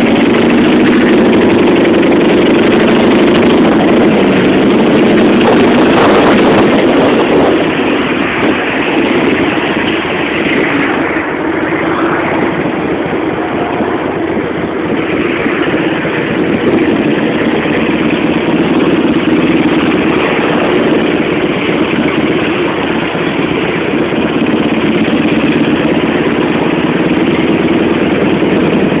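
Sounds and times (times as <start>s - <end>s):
motorcycle engine running: 0.0s - 29.0s.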